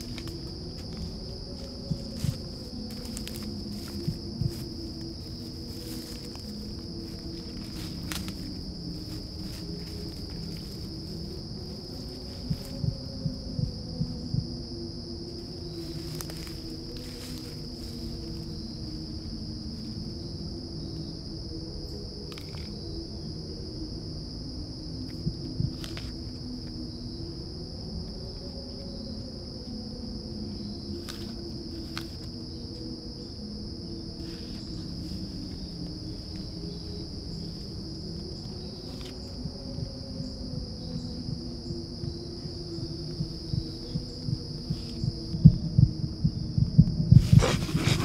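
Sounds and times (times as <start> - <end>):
low hum: 0.0 - 21.2, 32.8 - 48.0
crickets trilling: 0.0 - 48.0
low thumps: 43.2 - 48.0.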